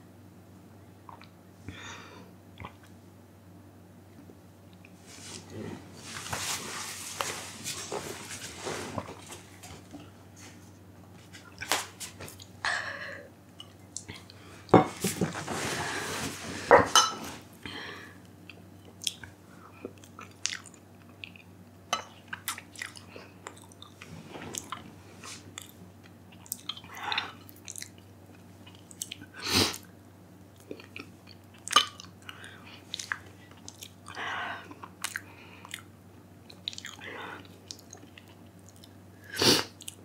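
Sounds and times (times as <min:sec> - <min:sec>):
eating and drinking mouth sounds: 0:01.0 - 0:01.4, 0:02.6 - 0:02.9, 0:18.5 - 0:29.9, 0:30.6 - 0:40.0.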